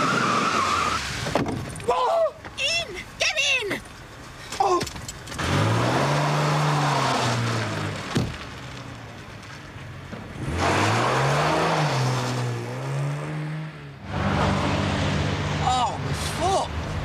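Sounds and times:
car engine revving: 5.3s - 8.2s, 10.4s - 15.8s.

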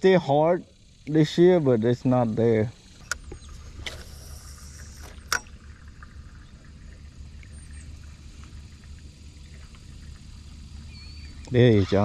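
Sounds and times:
brief hiss: 3.6s - 5.4s.

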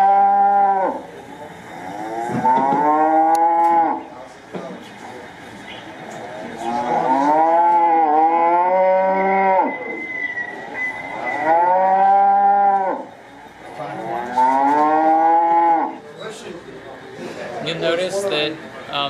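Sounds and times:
recorded cow moos from speaker: 0.0s - 1.1s, 1.8s - 4.1s, 6.6s - 10.1s, 11.2s - 13.2s, 13.9s - 16.0s.

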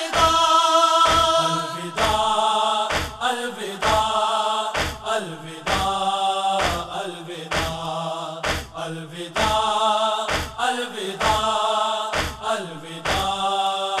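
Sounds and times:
unison chest-beating thuds: 0.0s - 1.4s, 2.0s - 14.0s
mourners chanting in held notes: 0.0s - 14.0s.

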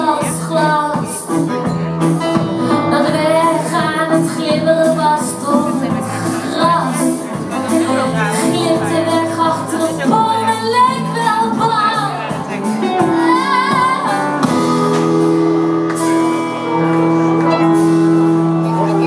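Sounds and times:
woman singing: 0.0s - 1.5s, 2.7s - 15.3s
electric keyboard chords: 0.0s - 19.0s
guitars: 0.0s - 19.0s.

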